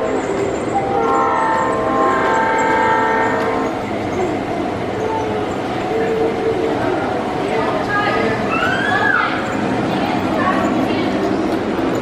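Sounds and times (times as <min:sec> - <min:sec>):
model trains running: 0:00.0 - 0:12.0
model locomotive horn blast: 0:00.8 - 0:03.8.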